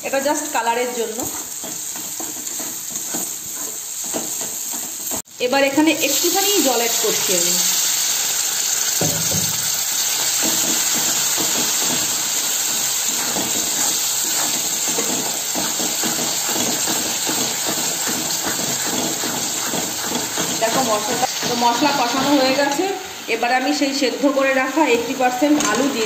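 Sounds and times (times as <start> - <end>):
masala sizzling in hot oil: 0.0 - 26.0
metal spatula scraping: 1.0 - 5.2, 9.6 - 22.9.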